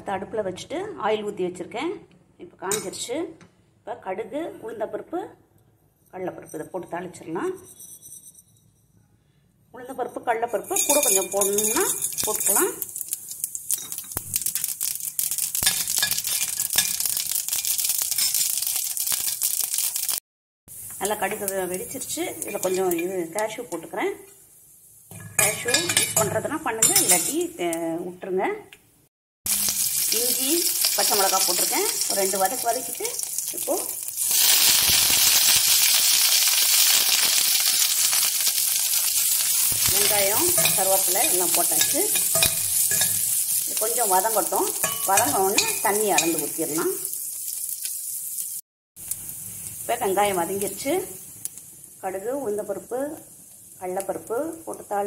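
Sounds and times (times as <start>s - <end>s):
spoon scraping steel pan: 10.1s - 12.7s, 22.4s - 23.2s, 39.7s - 43.4s, 44.8s - 46.5s
seeds sizzling and popping in oil: 10.6s - 27.9s, 29.5s - 55.0s.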